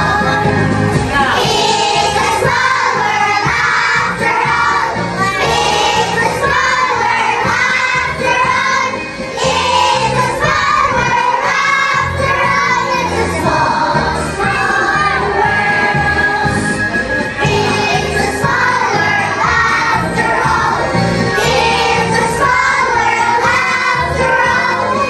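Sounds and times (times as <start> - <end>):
music with steady beat: 0.0 - 25.0
children singing in chorus: 1.2 - 16.7, 17.4 - 25.0.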